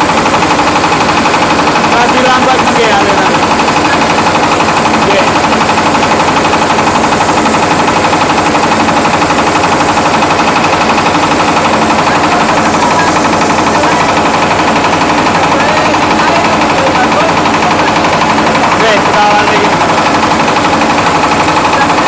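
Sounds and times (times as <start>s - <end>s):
rice huller rattling drone: 0.0s - 22.0s.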